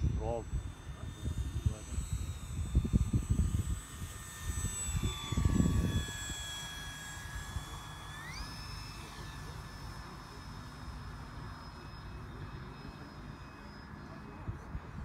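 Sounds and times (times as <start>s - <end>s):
wind gusts on microphone: 0.0s - 6.5s
model airplane motor whining: 0.0s - 15.0s.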